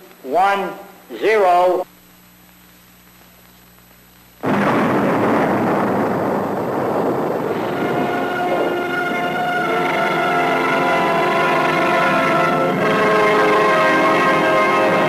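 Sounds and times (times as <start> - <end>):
faint steady hum: 0.0 - 15.0
explosion rumble: 4.4 - 10.1
steady music tones: 7.4 - 15.0.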